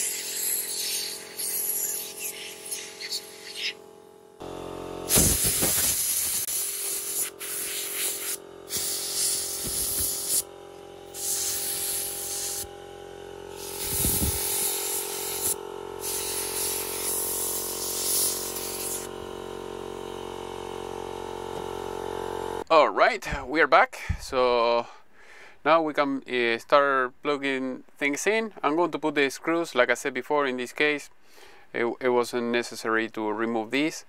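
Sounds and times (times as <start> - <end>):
compressed air hissing: 0.0 - 3.8, 5.1 - 12.8, 13.5 - 19.1.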